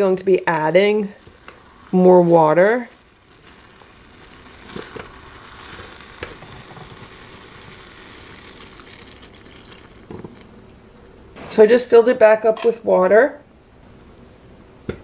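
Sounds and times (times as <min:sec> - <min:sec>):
water pouring into soup: 0:00.0 - 0:10.8.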